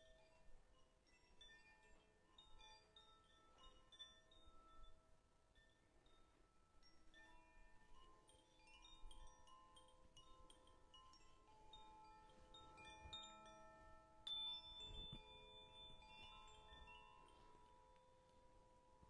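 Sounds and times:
small bright chimes tinkling: 0.0 - 19.0
singing bowls ringing: 5.9 - 19.0.

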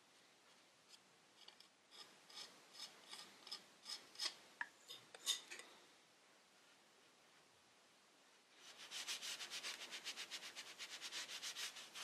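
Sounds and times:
knife blade scraping filler: 1.4 - 5.6.

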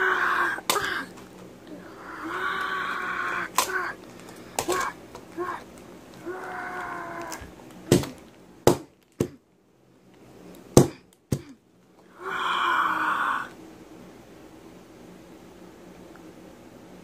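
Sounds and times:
child groaning: 0.0 - 4.0, 4.6 - 7.5, 11.4 - 13.6.

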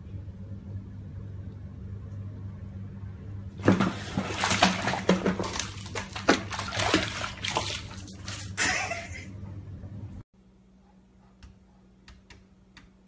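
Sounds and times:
low steady hum: 0.0 - 13.0
bathtub water splashing: 3.5 - 9.3.

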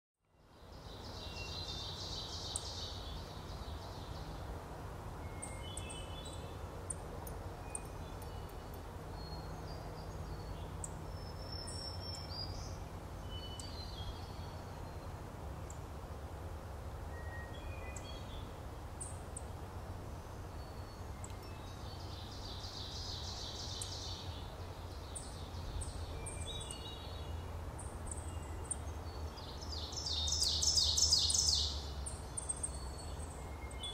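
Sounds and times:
bird chant song: 0.2 - 4.5, 5.2 - 15.8, 17.1 - 19.5, 20.2 - 33.9.

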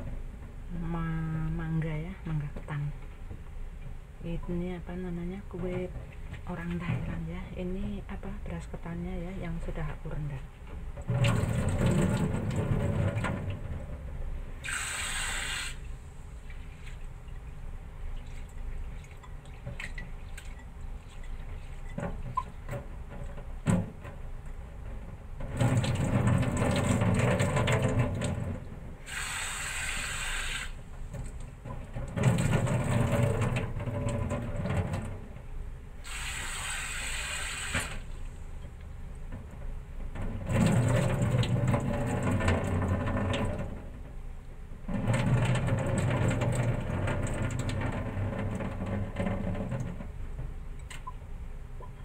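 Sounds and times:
water sloshing in a bowl: 9.6 - 14.6, 15.8 - 29.0, 29.8 - 35.6, 37.9 - 44.2, 44.8 - 51.2
water poured into a sink: 11.0 - 13.8, 25.5 - 30.8, 32.0 - 35.1, 36.0 - 38.1, 40.4 - 43.8, 44.9 - 49.9.

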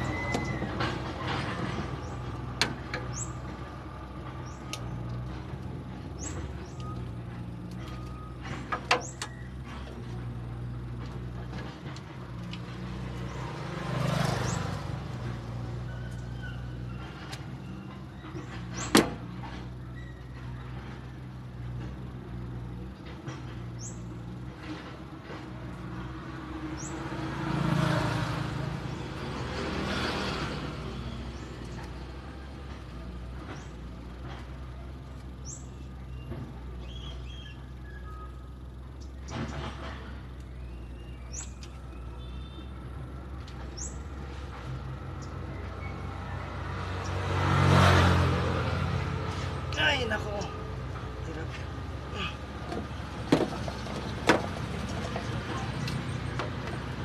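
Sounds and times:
low motor hum: 0.0 - 57.0
vehicle passing: 10.1 - 17.5, 23.8 - 34.6, 41.3 - 57.0.

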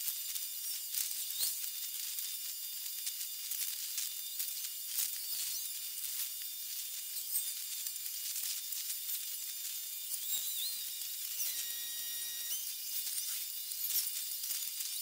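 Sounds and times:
high-pitched hiss: 0.0 - 15.0
rapid ticks and chirps: 0.0 - 15.0
thin whistle-like tone: 10.0 - 15.0.

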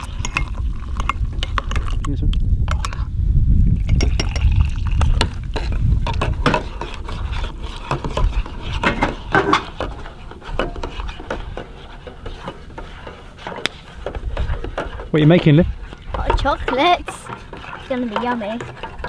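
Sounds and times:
liquid pouring into metal mug: 3.7 - 5.6
teaspoon clinking in mug: 3.8 - 4.7.

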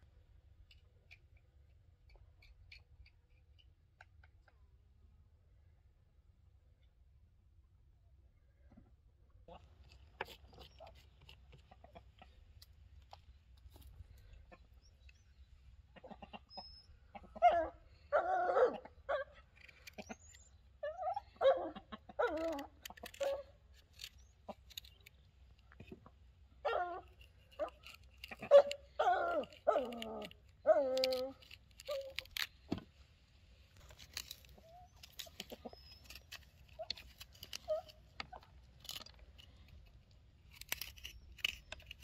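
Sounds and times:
hens and rooster clucking: 10.6 - 12.4, 15.9 - 23.5, 28.2 - 30.8, 34.5 - 36.1.

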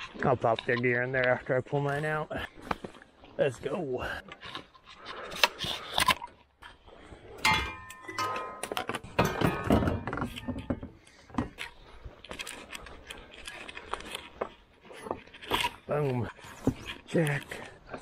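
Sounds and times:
metal clank ringing: 7.4 - 11.0.

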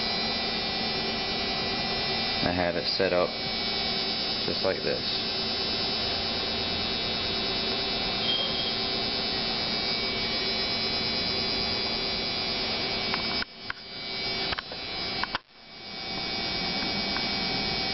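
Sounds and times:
electrical hum and buzz: 0.0 - 17.9.

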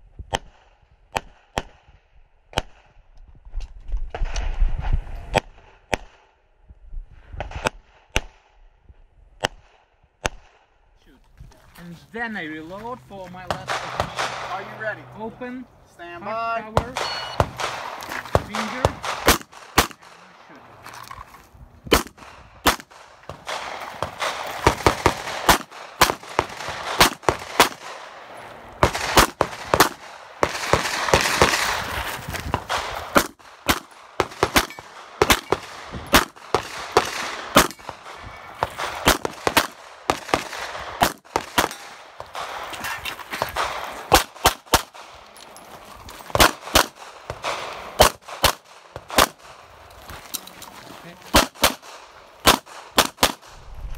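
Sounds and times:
pistol gunshots: 13.5 - 14.9, 16.7 - 20.4, 21.9 - 42.8, 43.4 - 45.3, 46.3 - 49.8, 51.2 - 53.7
burst of rushing noise: 53.5 - 53.9.

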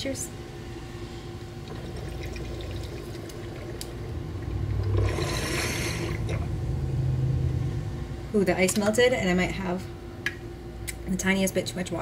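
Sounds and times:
water bubbling in a bong: 1.6 - 6.8.

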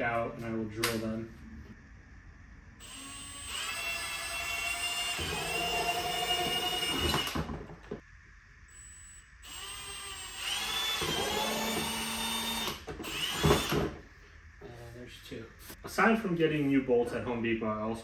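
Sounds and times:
cordless drill boring: 2.8 - 7.6, 9.4 - 13.9.

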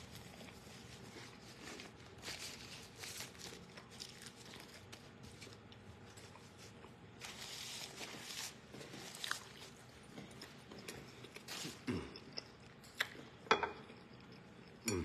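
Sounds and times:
paper rustling: 0.0 - 9.7
person eating crunchy sandwich: 0.0 - 15.0.

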